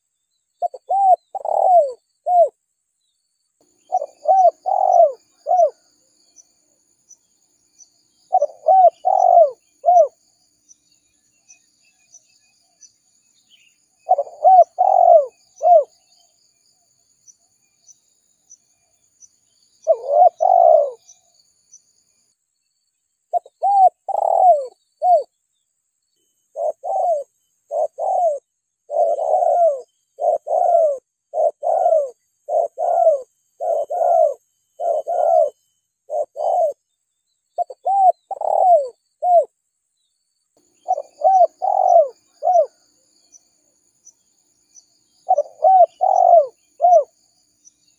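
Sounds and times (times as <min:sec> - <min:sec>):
dove cooing: 0:00.6 - 0:02.6, 0:03.9 - 0:05.8, 0:08.3 - 0:10.2, 0:14.0 - 0:15.9, 0:19.8 - 0:21.2, 0:23.3 - 0:25.3, 0:26.5 - 0:36.8, 0:37.6 - 0:39.5, 0:40.8 - 0:42.8, 0:45.2 - 0:47.1.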